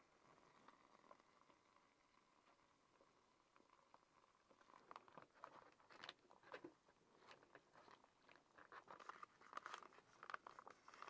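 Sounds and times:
foil pouch crinkling: 7.2 - 11.0.

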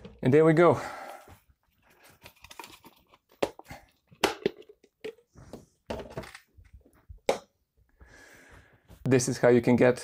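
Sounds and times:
plastic parts clicking and knocking: 2.1 - 5.3, 5.9 - 7.5.

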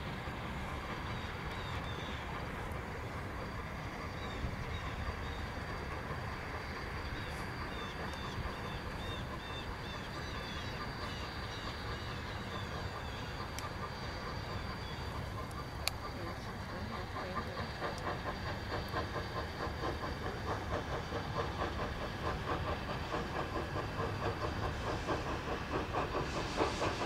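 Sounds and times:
birds chirping: 0.7 - 18.8.

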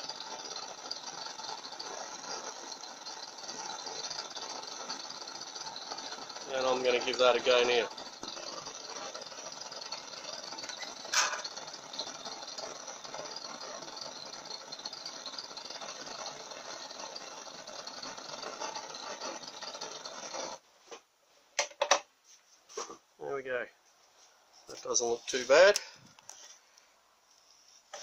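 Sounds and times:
blowtorch hissing flame: 0.0 - 20.6.

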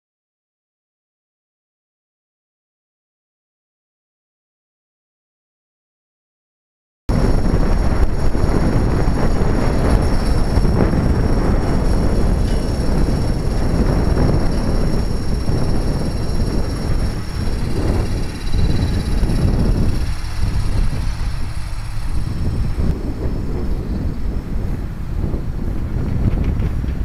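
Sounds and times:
high motor whine: 7.1 - 27.0
rotor wash buffeting microphone: 7.1 - 27.0.

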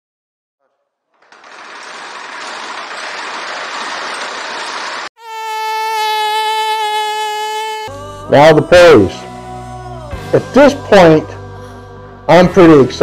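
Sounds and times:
buzzing tone: 5.2 - 8.0.

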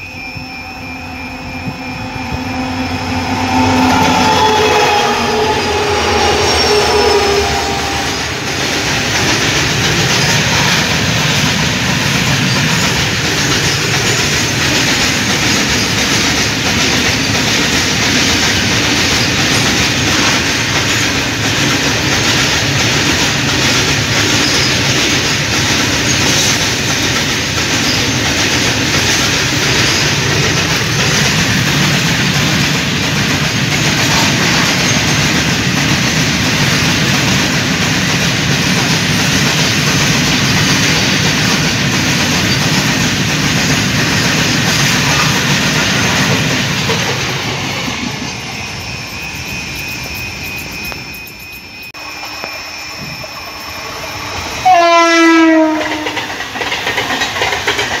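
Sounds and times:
train horn: 0.0 - 8.8, 33.8 - 35.0, 54.6 - 56.3
wagon wheels clattering over rails: 55.9 - 58.0.

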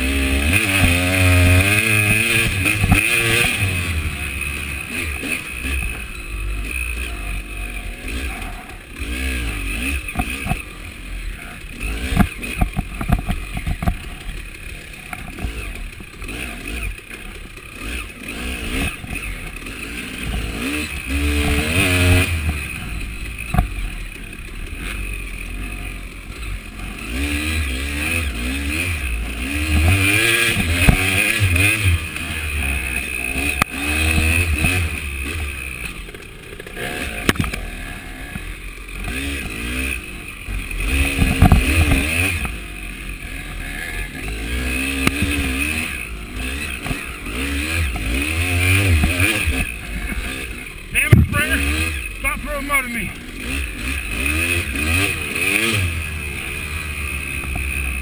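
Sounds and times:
bike rattling over bumps: 0.0 - 52.4, 53.1 - 58.0
dirt bike engine revving: 0.0 - 58.0.

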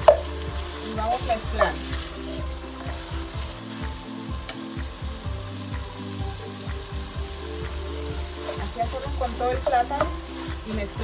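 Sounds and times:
wooden spoon scraping a pot: 0.0 - 3.8
food sizzling in a pot: 0.0 - 11.0.

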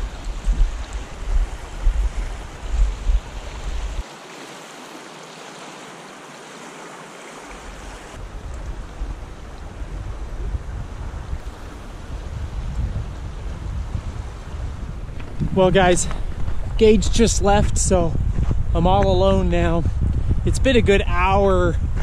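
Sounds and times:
wind rumble on microphone: 0.0 - 4.0, 8.2 - 22.0
river water rushing: 0.0 - 10.0, 11.4 - 12.7.

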